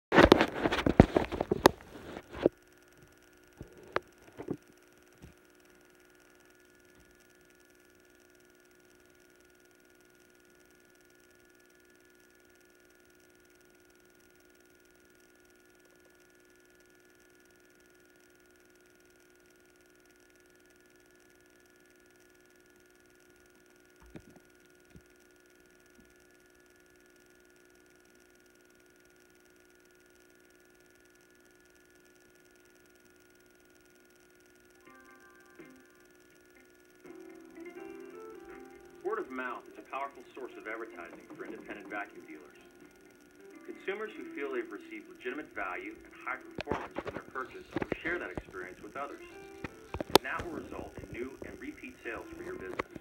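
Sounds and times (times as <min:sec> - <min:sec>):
faint electrical hum: 0:00.1 - 0:53.0
scattered clicks: 0:38.5 - 0:53.0.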